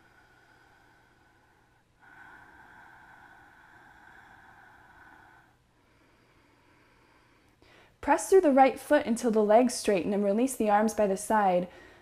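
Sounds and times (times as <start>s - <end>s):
person breathing slowly: 0.0s - 8.0s, 11.7s - 12.0s.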